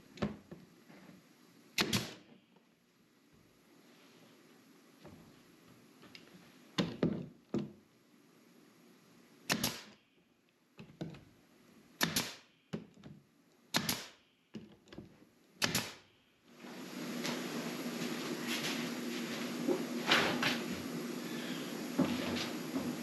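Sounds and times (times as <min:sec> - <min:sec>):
nailer firing sharp shots: 0:01.8 - 0:02.3, 0:09.5 - 0:10.0, 0:12.0 - 0:12.6, 0:13.7 - 0:14.2, 0:15.6 - 0:16.1.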